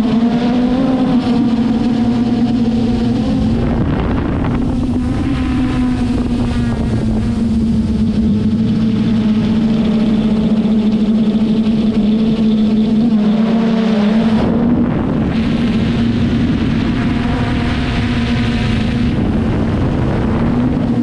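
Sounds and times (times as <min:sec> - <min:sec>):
drone propellers humming: 0:00.0 - 0:21.0
rush of air: 0:02.8 - 0:10.2.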